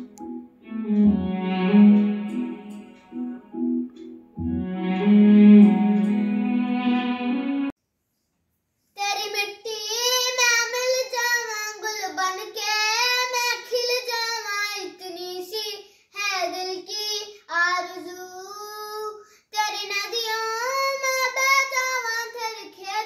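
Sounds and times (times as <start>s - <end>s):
guitar instrumental tune: 0.0s - 7.7s
boy singing unaccompanied: 9.0s - 23.0s.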